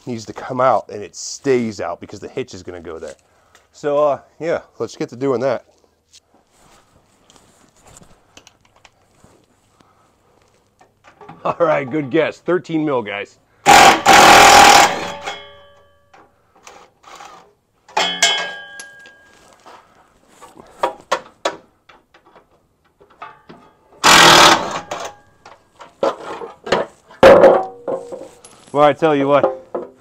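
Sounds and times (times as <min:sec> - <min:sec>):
loud rattling bursts: 0:13.6 - 0:15.2, 0:24.0 - 0:25.1
metallic clicks and clinks of tools: 0:17.9 - 0:19.7, 0:28.1 - 0:28.9.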